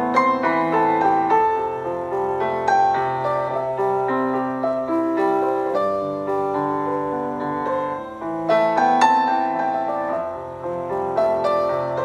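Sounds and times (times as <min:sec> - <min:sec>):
slow piano melody: 0:00.0 - 0:12.0.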